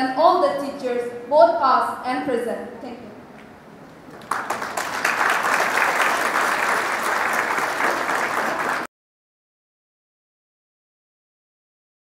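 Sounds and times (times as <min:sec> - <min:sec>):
audience applauding: 0:04.1 - 0:08.9.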